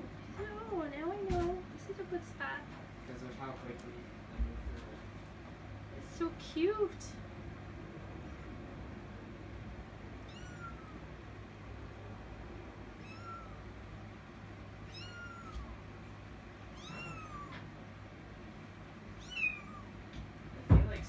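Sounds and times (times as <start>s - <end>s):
kitten meowing: 10.2s - 11.0s, 13.0s - 13.6s, 14.9s - 15.8s, 16.7s - 17.6s, 19.2s - 20.0s.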